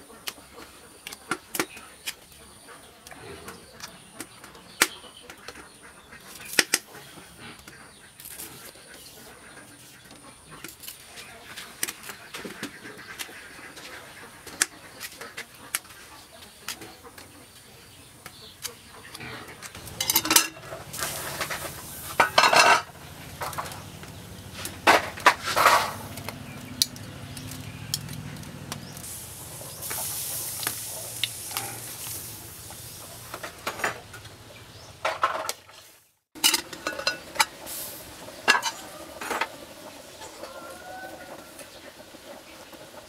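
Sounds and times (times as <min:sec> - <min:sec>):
steam hissing: 0:19.8 - 0:22.7, 0:28.8 - 0:33.7, 0:36.8 - 0:43.0
cooking pot clanking: 0:19.8 - 0:23.8, 0:36.4 - 0:37.6, 0:38.4 - 0:39.6.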